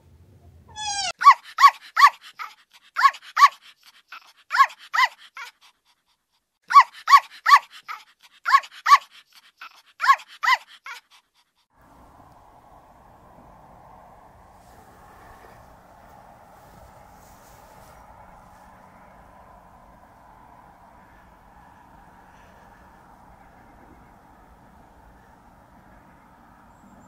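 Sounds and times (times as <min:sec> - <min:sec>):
small dog yapping: 0:00.7 - 0:05.6, 0:06.7 - 0:11.1
faint outdoor hiss: 0:11.8 - 0:27.0.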